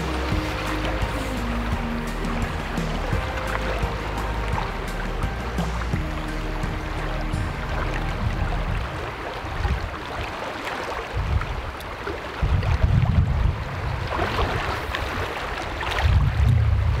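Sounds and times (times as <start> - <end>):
river current flowing and lapping: 0.0 - 17.0
wind gusts rumbling on microphone: 7.3 - 17.0.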